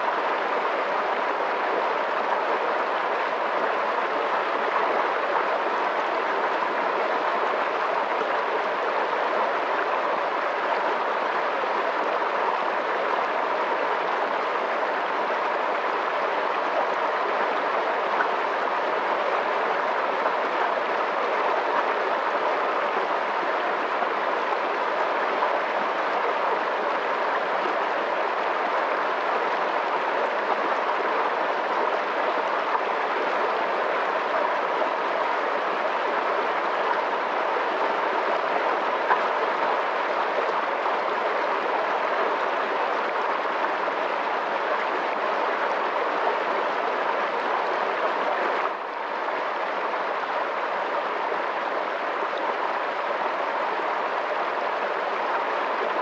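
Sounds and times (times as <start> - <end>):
fast-flowing water rushing: 0.0 - 56.0.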